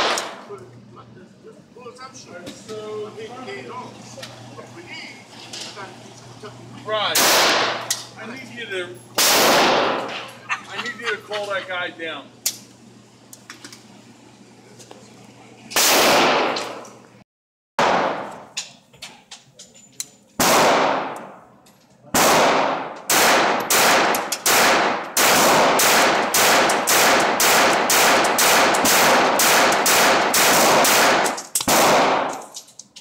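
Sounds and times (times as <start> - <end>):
pistol shots with echo: 0.0 - 0.4, 7.2 - 7.9, 9.2 - 10.1, 15.8 - 16.8, 17.8 - 18.4, 20.4 - 21.4, 22.2 - 32.4.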